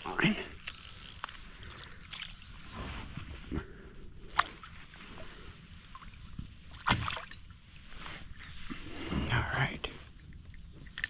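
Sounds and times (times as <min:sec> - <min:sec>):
water sloshing and gurgling: 0:00.0 - 0:09.4.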